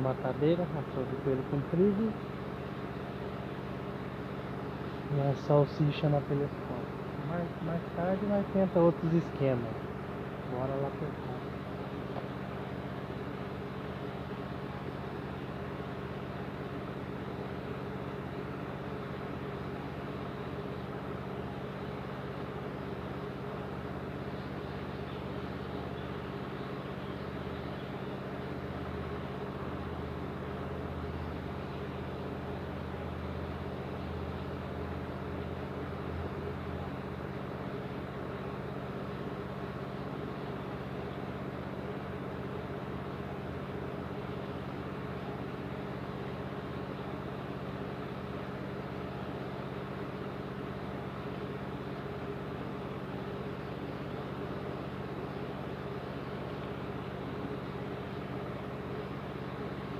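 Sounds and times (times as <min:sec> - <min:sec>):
low mechanical hum: 0:00.0 - 0:59.9.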